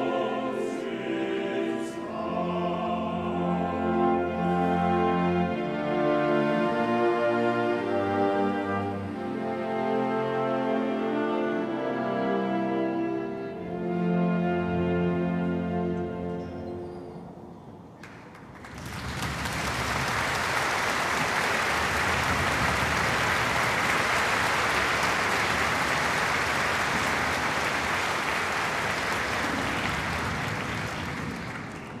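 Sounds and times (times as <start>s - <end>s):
audience applauding: 18.0s - 32.0s.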